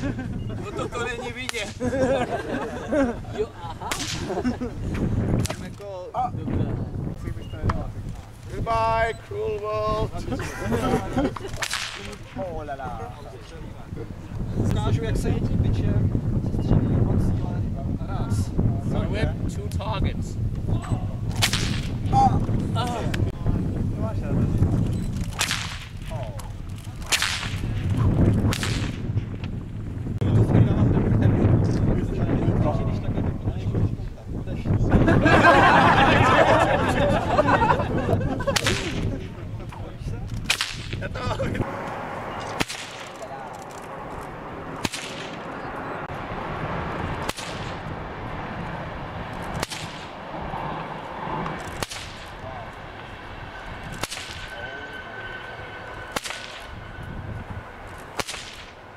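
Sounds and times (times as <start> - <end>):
bullwhip cracking: 3.9 - 4.4, 5.4 - 5.7, 11.5 - 12.3, 21.3 - 22.0, 25.3 - 26.2, 27.0 - 27.8, 28.4 - 29.0, 38.5 - 39.1, 40.4 - 41.0, 42.4 - 43.3, 44.8 - 45.6, 47.2 - 47.9, 49.4 - 50.2, 51.6 - 52.4, 54.0 - 54.5, 56.1 - 56.8, 58.1 - 58.8.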